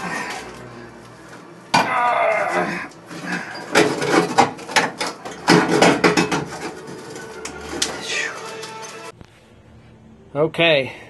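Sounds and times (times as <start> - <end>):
metal clanks and knocks: 3.1 - 7.9
drawn-out pitched metal sound: 5.2 - 9.5.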